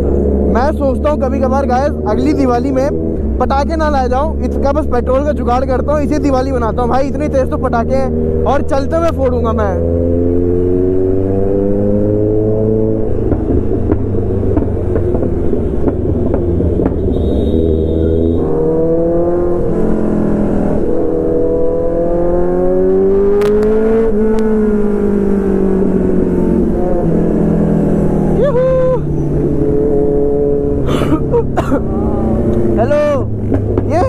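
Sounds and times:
motorcycle engine revving: 0.0s - 34.0s
exhaust pops: 13.2s - 17.2s, 33.4s - 34.0s.

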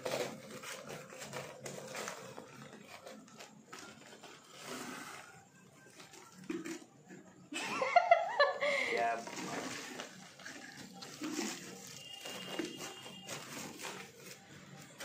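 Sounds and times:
soil scraping: 0.0s - 5.5s, 9.0s - 15.0s
plastic bag rustling: 0.0s - 6.7s, 8.4s - 15.0s.

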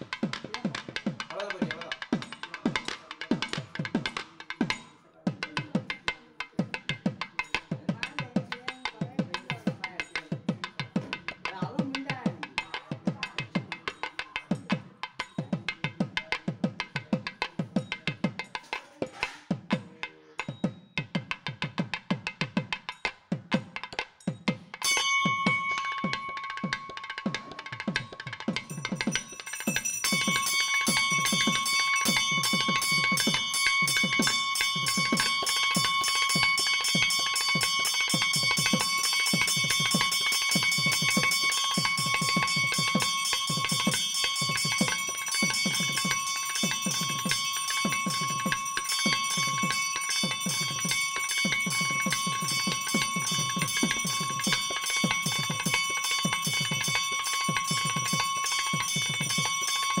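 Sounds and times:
hand bell ringing: 0.0s - 19.4s, 20.4s - 60.0s
low regular beat: 21.0s - 60.0s.

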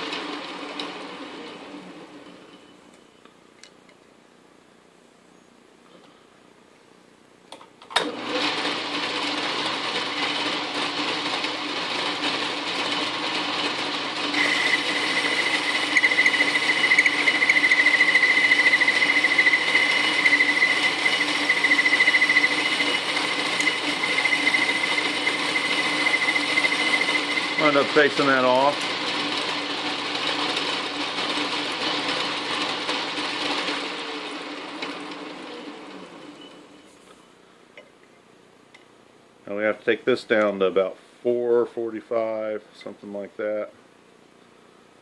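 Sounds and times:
metal lathe running: 8.0s - 35.8s.

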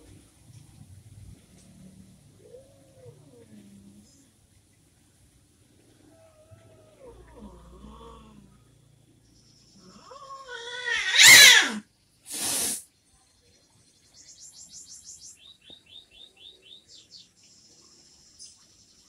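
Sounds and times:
cat caterwauling: 6.1s - 8.4s, 9.8s - 11.8s
cat hissing: 9.9s - 12.8s.

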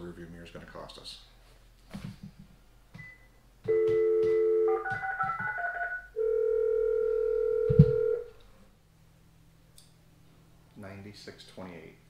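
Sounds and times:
keypad touch tones: 3.0s - 6.0s, 7.4s - 8.2s
telephone ringing tone: 3.7s - 8.3s
telephone dial tone: 6.2s - 8.3s.

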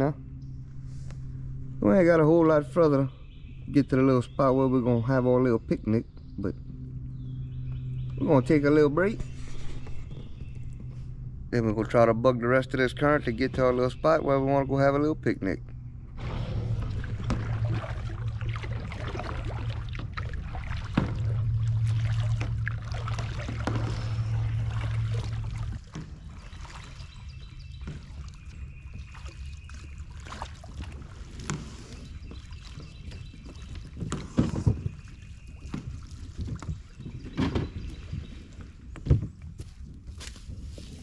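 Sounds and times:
low rumble: 0.0s - 32.2s
paddles splashing in water: 16.2s - 39.4s.

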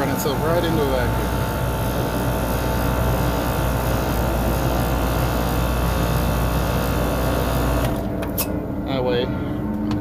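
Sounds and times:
compressor hum and whine: 0.0s - 10.0s.

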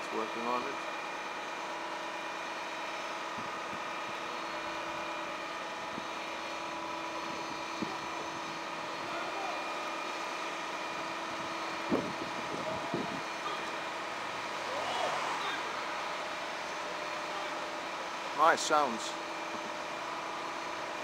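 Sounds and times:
truck engine droning: 0.0s - 21.0s.

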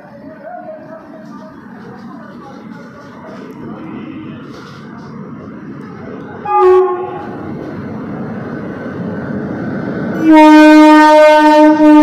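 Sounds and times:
electric locomotive rumbling: 0.0s - 12.0s
locomotive air horn: 6.4s - 7.4s, 10.2s - 12.0s.

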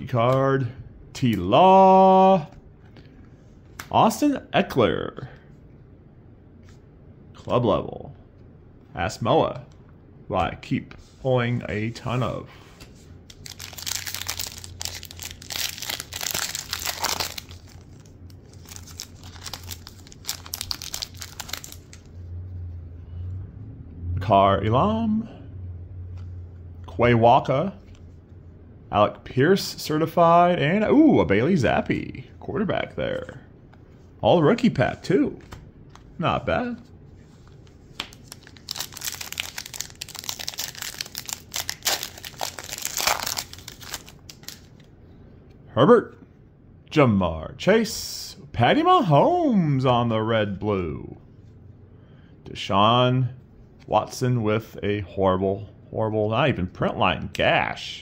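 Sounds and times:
foil wrapper tearing and crinkling: 13.3s - 22.0s, 38.1s - 44.7s.

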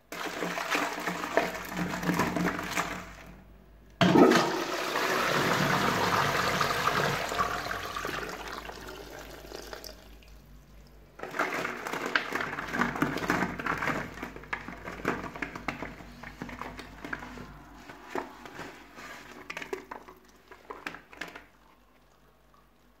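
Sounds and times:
toilet flushing: 0.1s - 3.3s, 4.0s - 10.4s
plastic balls rattling: 11.2s - 17.3s.

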